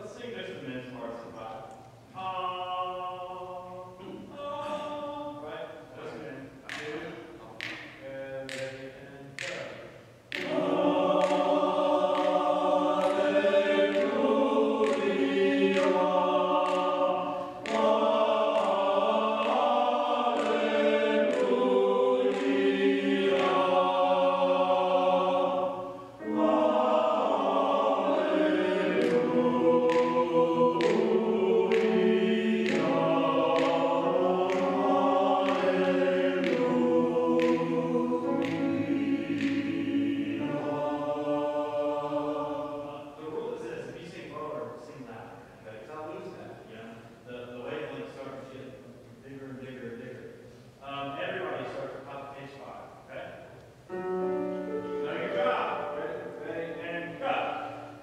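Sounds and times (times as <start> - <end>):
church choir singing: 2.1 - 6.2, 8.5 - 44.8, 53.9 - 58.0.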